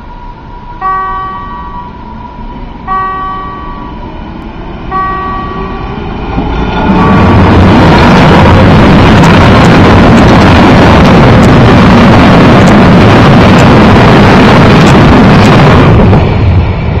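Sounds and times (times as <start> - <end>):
electric train passing: 0.0 - 17.0
level crossing warning bell: 0.8 - 2.2, 2.9 - 4.1, 4.9 - 6.1.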